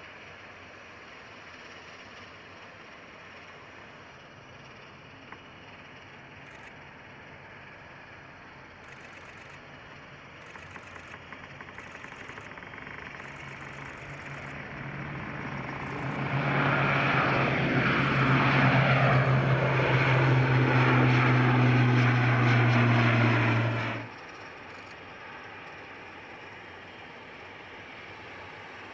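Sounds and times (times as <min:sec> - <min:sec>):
turboprop engines droning: 0:00.0 - 0:28.9.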